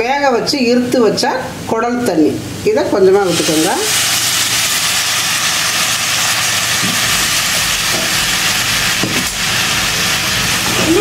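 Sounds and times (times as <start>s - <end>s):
liquid sizzling in hot oil: 3.1s - 11.0s.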